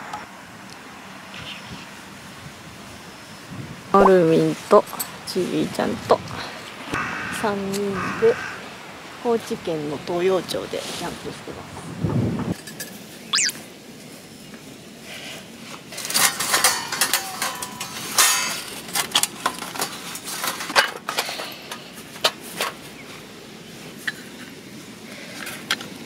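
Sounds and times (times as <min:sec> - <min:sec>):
thin metal clinks and scrapes: 0:16.0 - 0:21.6.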